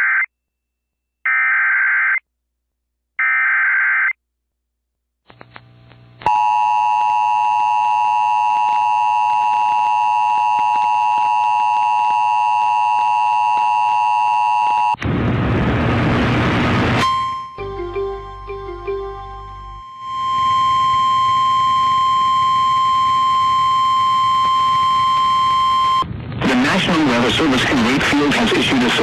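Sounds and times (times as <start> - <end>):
two-tone alert signal: 17.0 - 26.0.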